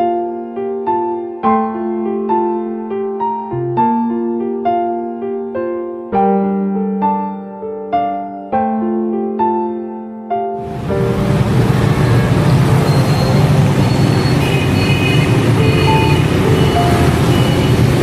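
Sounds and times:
soft piano music: 0.0 - 18.0
cars and motorbikes traffic: 10.6 - 18.0
short high tones: 11.8 - 18.0.

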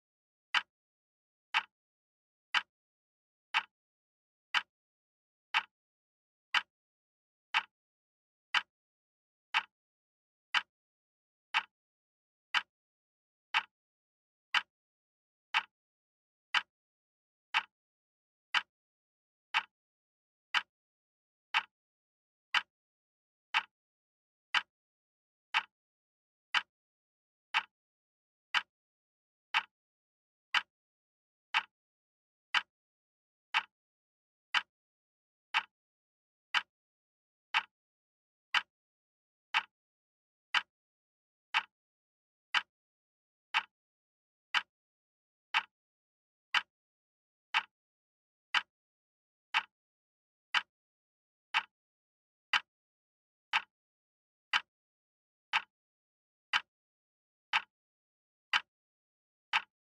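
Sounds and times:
wall clock ticking: 1.5 - 1.7, 3.5 - 3.7, 5.5 - 5.7, 6.5 - 6.7, 7.5 - 7.7, 8.5 - 8.7, 9.5 - 9.7, 10.5 - 10.7, 11.5 - 11.7, 12.5 - 12.7, 13.5 - 13.7, 14.5 - 14.7, 15.5 - 15.7, 16.5 - 16.7, 17.5 - 17.7, 18.5 - 18.7, 19.5 - 19.7, 20.5 - 20.7, 21.5 - 21.7, 22.5 - 22.7, 23.5 - 23.7, 24.5 - 24.7, 25.5 - 25.7, 26.5 - 26.7, 27.5 - 27.7, 28.5 - 28.7, 29.5 - 29.7, 30.5 - 30.7, 31.5 - 31.7, 32.5 - 32.7, 33.5 - 33.7, 34.5 - 34.7, 35.5 - 35.7, 36.5 - 36.7, 37.5 - 37.7, 38.5 - 38.7, 39.5 - 39.7, 40.5 - 40.7, 41.5 - 41.7, 42.5 - 42.7, 43.5 - 43.7, 44.5 - 44.7, 45.5 - 45.7, 46.5 - 46.7, 47.5 - 47.7, 48.5 - 48.7, 49.5 - 49.7, 50.5 - 50.7, 51.5 - 51.7, 53.5 - 53.7, 55.5 - 55.7, 57.5 - 57.7, 59.5 - 59.7.

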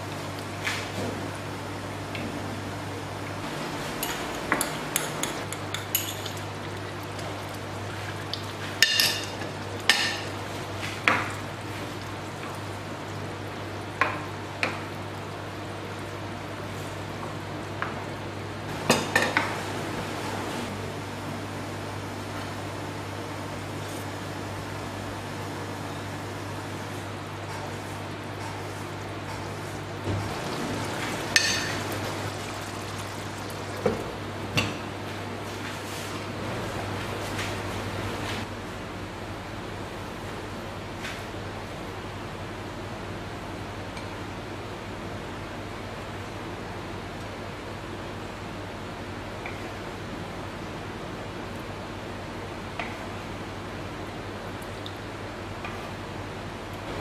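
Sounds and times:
metal spoon clinking on pot: 4.0 - 6.4
glass lid clanking on pot: 31.4 - 31.9.

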